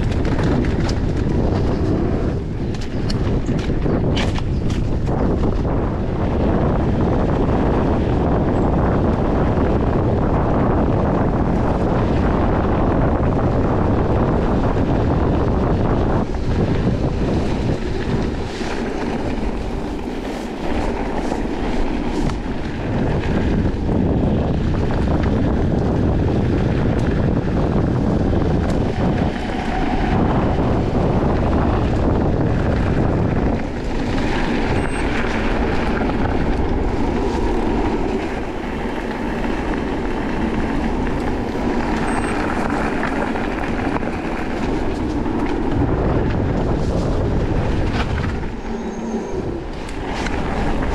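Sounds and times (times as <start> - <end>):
bike knocks and rattles: 0.0 - 5.8
wind buffeting microphone: 0.0 - 50.9.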